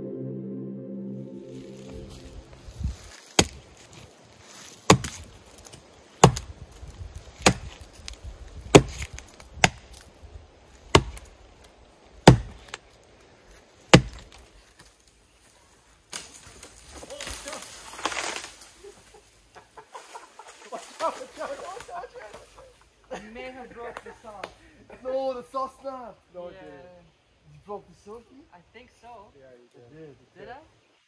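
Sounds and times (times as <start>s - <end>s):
axe chopping into tree trunk: 3.4s - 3.6s, 4.9s - 6.6s, 7.4s - 7.9s, 8.7s - 10.0s, 10.9s - 11.3s, 12.2s - 12.8s, 13.9s - 14.4s.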